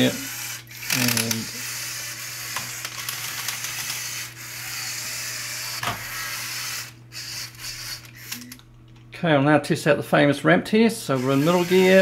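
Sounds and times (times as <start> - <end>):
toy car motor and gears whirring: 0.0 - 8.6, 11.1 - 12.0.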